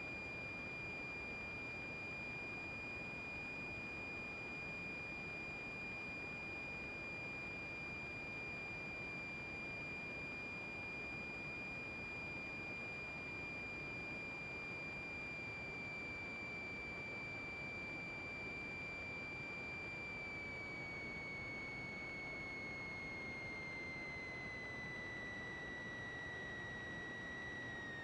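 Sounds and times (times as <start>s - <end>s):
high-pitched electrical whine: 12.2s - 28.0s.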